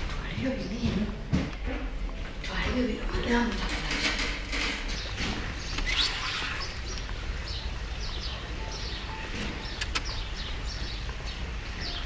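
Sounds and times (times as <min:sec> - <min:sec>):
small birds chirping: 0:04.5 - 0:12.0.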